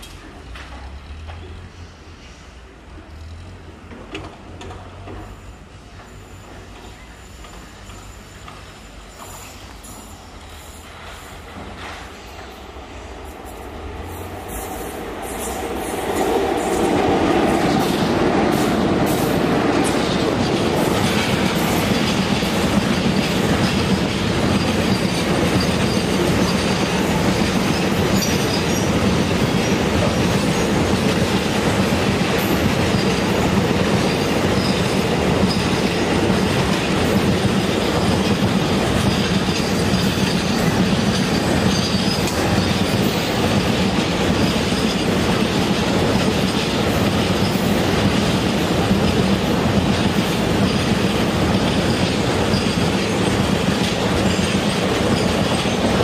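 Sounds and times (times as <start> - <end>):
electric locomotives passing: 0.0 - 56.0
high wheel squeal: 5.2 - 11.3
wheels clacking on rails: 11.0 - 56.0.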